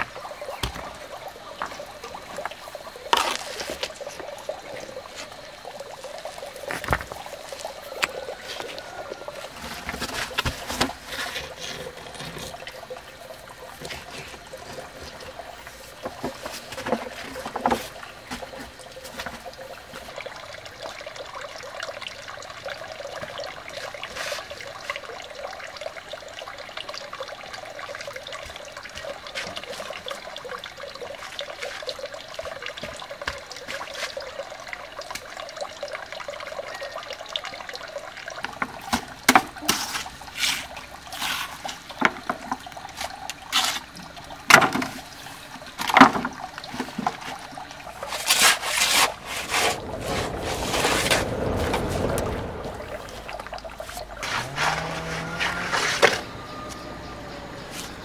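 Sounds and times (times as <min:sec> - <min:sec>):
water trickling: 0:00.0 - 0:58.0
stones knocking and scraping: 0:03.1 - 0:04.0, 0:06.3 - 0:08.9.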